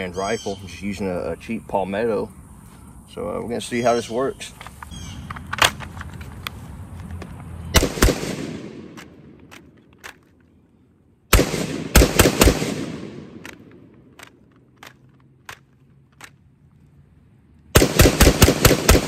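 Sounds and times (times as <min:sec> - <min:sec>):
rifle shots with echo: 0:07.8 - 0:09.4, 0:11.3 - 0:14.3, 0:17.7 - 0:19.0.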